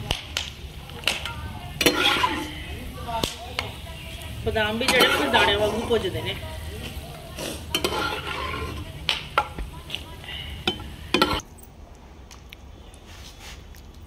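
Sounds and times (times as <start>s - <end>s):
frying sizzle: 0.0s - 11.4s
metal spatula scraping a pan: 1.7s - 2.8s, 4.7s - 9.6s, 10.4s - 11.4s.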